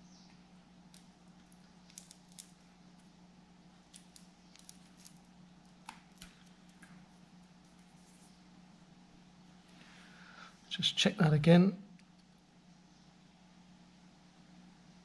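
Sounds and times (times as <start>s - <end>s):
low steady hum: 0.0s - 15.0s
fingers handling wires: 0.9s - 3.1s, 3.9s - 7.0s.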